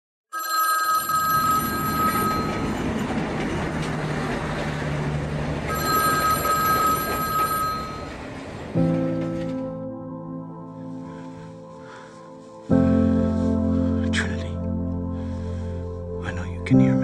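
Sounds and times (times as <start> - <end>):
payphone ringing: 0.3 - 2.7, 5.7 - 8.2.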